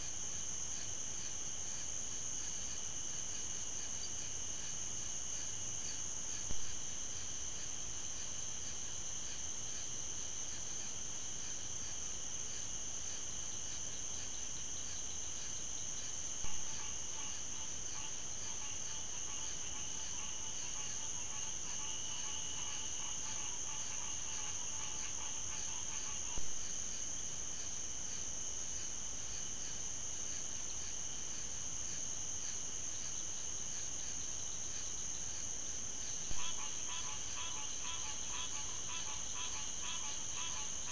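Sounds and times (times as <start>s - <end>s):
insect chorus shrill trill: 36.0s - 40.9s.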